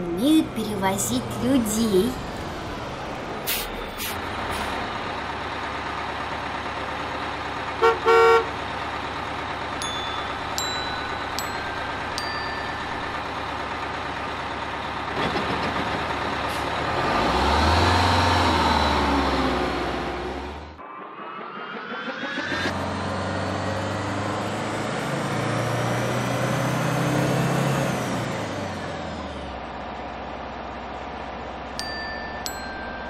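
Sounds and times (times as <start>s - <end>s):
bus engine running: 0.0s - 20.8s, 21.4s - 33.0s
bus horn toots: 7.8s - 8.6s
high pings: 9.8s - 13.4s.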